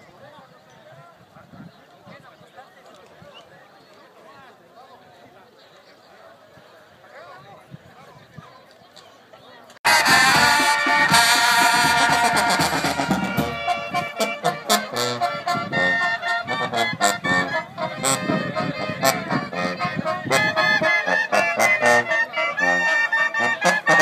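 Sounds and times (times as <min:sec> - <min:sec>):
music with quick rhythmic melody: 0:09.9 - 0:24.0.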